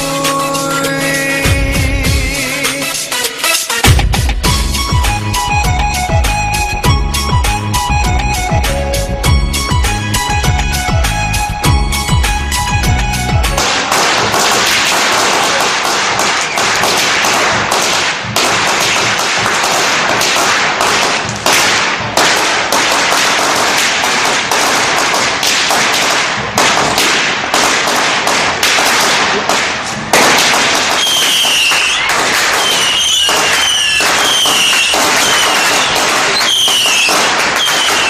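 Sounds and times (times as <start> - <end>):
firecrackers crackling: 13.4 - 38.0
high whistling sounds: 31.0 - 38.0.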